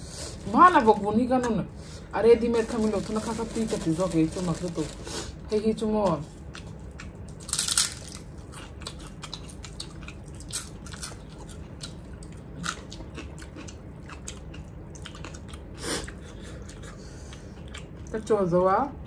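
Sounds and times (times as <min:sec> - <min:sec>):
wet chewing and mouth clicks: 0:08.1 - 0:18.2.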